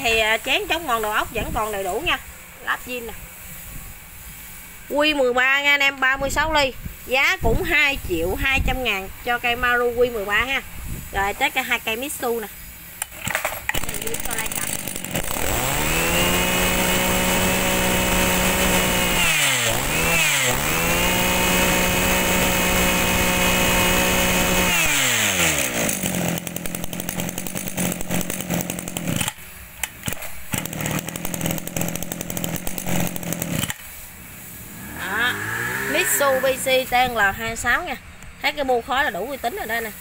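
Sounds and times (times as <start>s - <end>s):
brush cutter engine revving: 11.3s - 37.6s.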